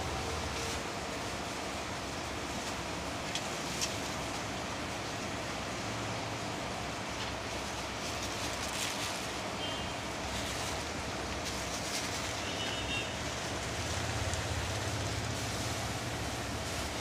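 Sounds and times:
low hum and hiss: 0:00.0 - 0:17.0.

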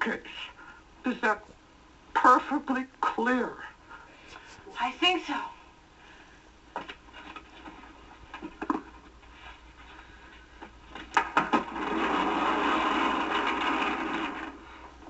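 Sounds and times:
bookcase grinding on pivot: 0:10.9 - 0:14.9.

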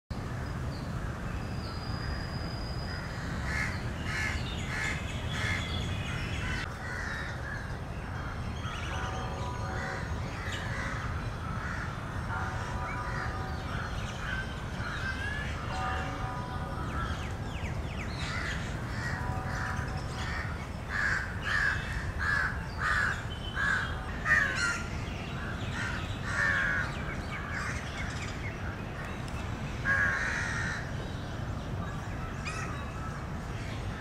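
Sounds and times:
crows cawing: 0:03.0 - 0:05.6, 0:06.4 - 0:07.7, 0:09.7 - 0:15.7, 0:18.2 - 0:27.8, 0:29.8 - 0:30.9.

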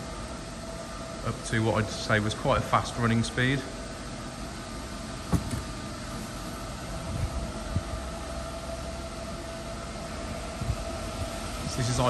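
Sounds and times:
conveyor motor whine: 0:00.0 - 0:12.0
running hum: 0:00.0 - 0:12.0
soft low thumps: 0:05.2 - 0:05.8.

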